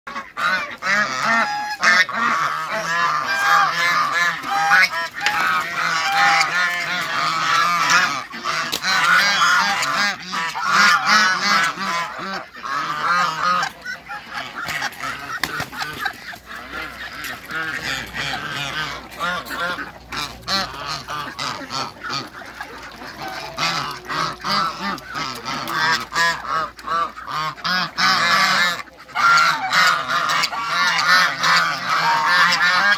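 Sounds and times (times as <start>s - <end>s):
geese honking: 0.1s - 32.9s.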